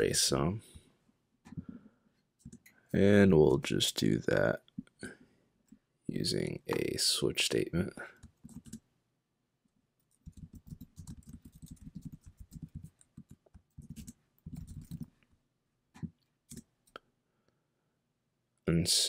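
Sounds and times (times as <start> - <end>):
typing on computer keyboard: 8.2 - 8.8, 10.1 - 15.1.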